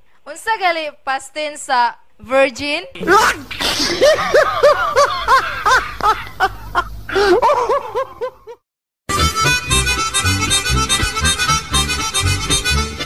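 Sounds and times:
laughter: 0:03.9 - 0:08.6
harmonica and accordion music: 0:09.1 - 0:13.0.

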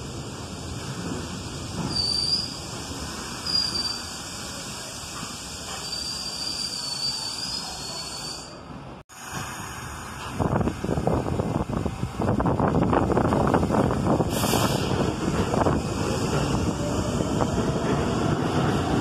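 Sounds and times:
train wheels rumbling on rails: 0:00.0 - 0:19.0
high-pitched brake squeals: 0:01.8 - 0:02.6, 0:03.4 - 0:04.2, 0:05.7 - 0:08.7.

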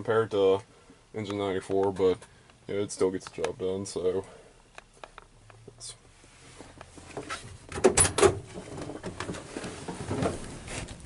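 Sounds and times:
knocks and clatter of climbing down: 0:06.9 - 0:10.9.

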